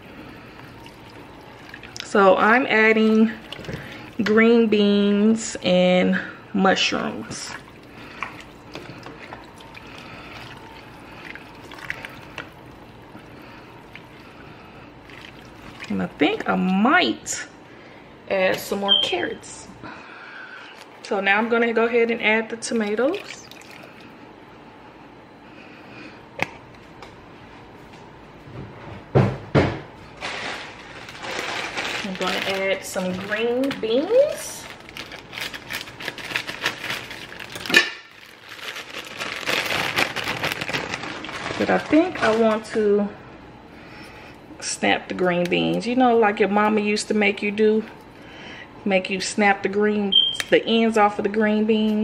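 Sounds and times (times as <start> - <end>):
soup being stirred in a pot: 0.1 - 4.3, 7.5 - 15.9.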